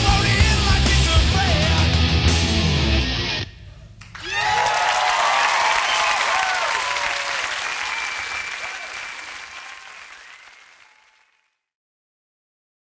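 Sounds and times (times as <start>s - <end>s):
rock song: 0.0s - 3.5s
audience applauding and cheering: 4.0s - 11.4s.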